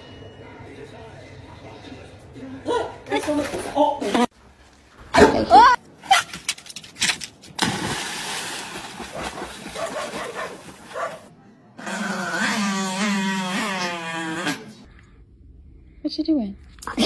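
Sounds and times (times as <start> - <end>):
water splashing: 7.5 - 11.3
dog snarling and growling: 11.8 - 14.8.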